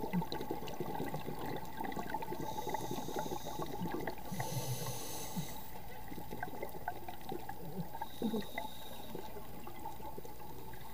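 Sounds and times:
bubbling gurgle: 0:00.0 - 0:10.9
underwater hiss: 0:02.3 - 0:05.9, 0:07.9 - 0:09.5.

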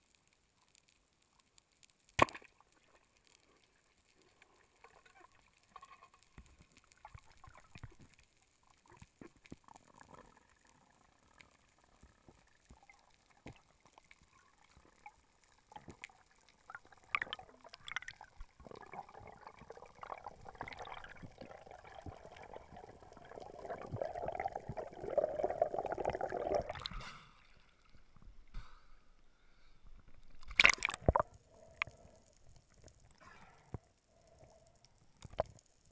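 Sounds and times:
underwater clicks and crackles: 0:00.0 - 0:28.8, 0:29.9 - 0:35.9
rush of water and bubbles: 0:15.7 - 0:27.9, 0:30.4 - 0:32.2.

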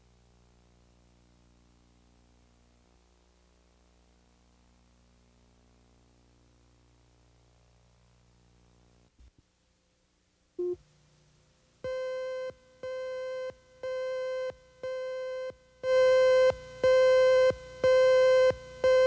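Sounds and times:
countdown leader beeps: 0:11.9 - 0:19.0.

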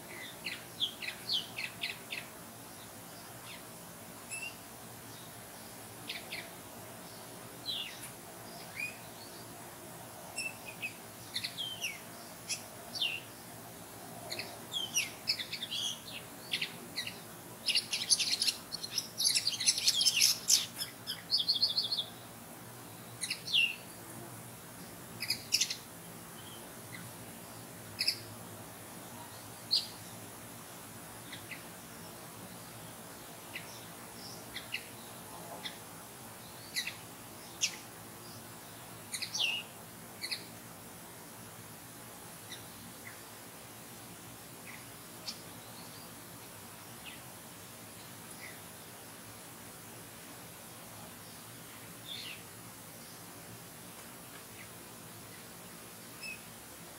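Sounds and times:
songbirds chirping and singing: 0:00.0 - 0:03.7, 0:14.2 - 0:24.1.

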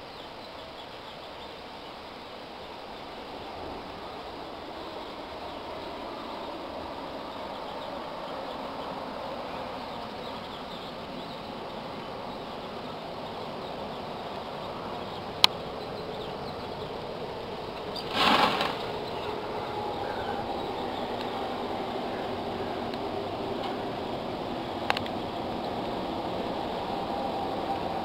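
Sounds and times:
outdoor background rush: 0:00.0 - 0:28.0
short burst of noise: 0:18.0 - 0:19.3.

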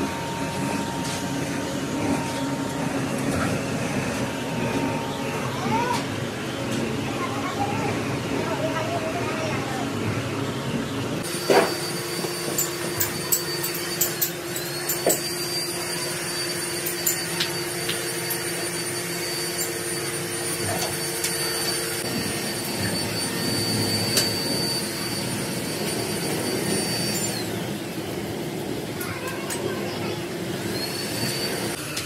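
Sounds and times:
workshop machinery whirring: 0:00.0 - 0:32.0
faint high whine: 0:11.2 - 0:32.0
metal castings clinking: 0:12.5 - 0:15.4.

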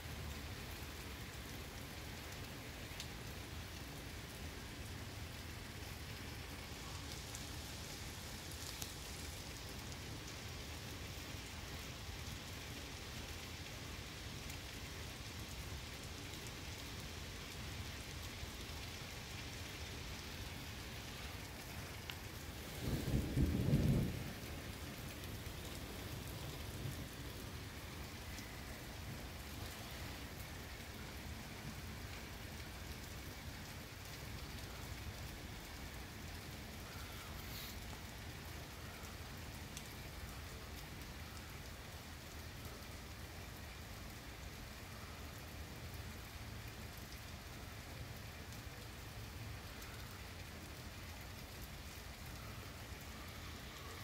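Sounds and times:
heavy rain falling: 0:00.0 - 0:54.0
thunder clap and rumble: 0:22.7 - 0:25.5.

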